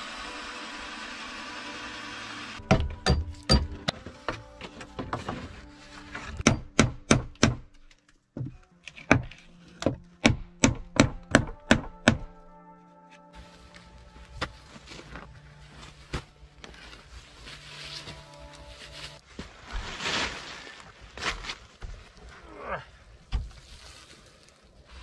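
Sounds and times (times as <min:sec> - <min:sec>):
background music: 0:00.0 - 0:19.2.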